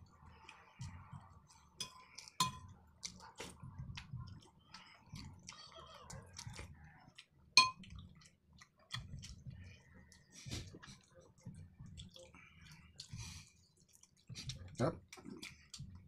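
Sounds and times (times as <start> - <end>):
chewing: 0.3 - 16.0
metal spoon clinking on bowl: 1.8 - 2.6, 7.6 - 7.8.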